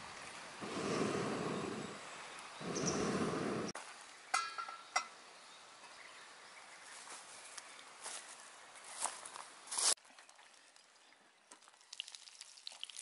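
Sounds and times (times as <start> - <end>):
wind gusts on microphone: 0.6 - 3.8.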